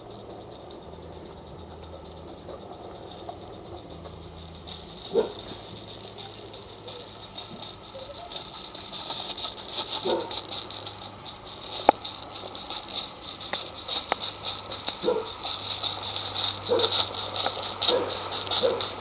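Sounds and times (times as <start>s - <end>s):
steam exhaust hissing in beats: 0.0s - 19.0s
wagons rattling on track: 0.0s - 19.0s
sharp click: 4.0s - 18.9s.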